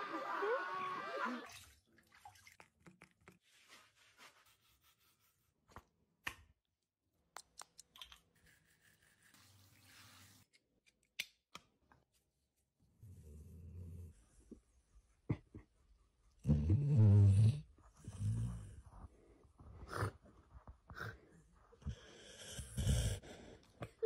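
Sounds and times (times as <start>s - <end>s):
water dripping: 1.4s - 3.4s.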